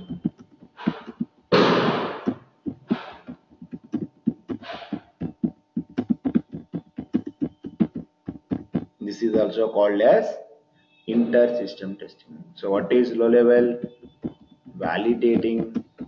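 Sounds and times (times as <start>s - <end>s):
short breathy hisses: 2.9s - 3.3s, 4.6s - 5.1s.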